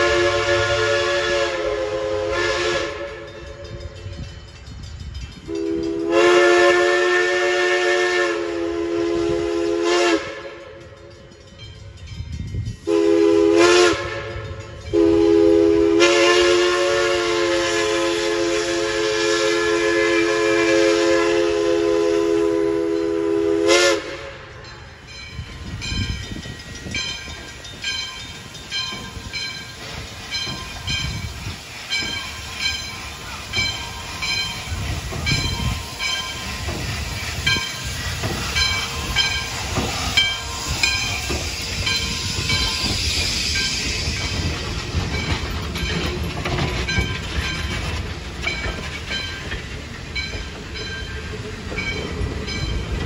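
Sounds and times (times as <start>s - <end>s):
steam locomotive whistle blast: 0.0s - 4.1s, 5.5s - 10.8s, 12.8s - 24.5s, 30.3s - 44.5s
train cars rolling by: 0.0s - 53.0s
locomotive bell ringing: 2.4s - 7.1s, 10.4s - 17.4s, 22.2s - 53.0s.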